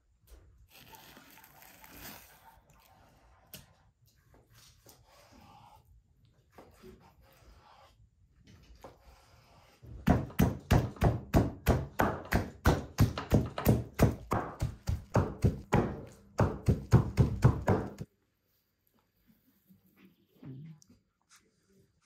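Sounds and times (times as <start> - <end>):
cleaver chopping on wooden board: 10.1 - 18.0.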